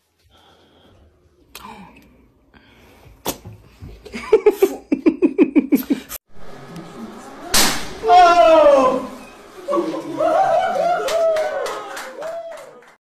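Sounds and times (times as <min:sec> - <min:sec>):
person laughing: 0:04.1 - 0:06.2.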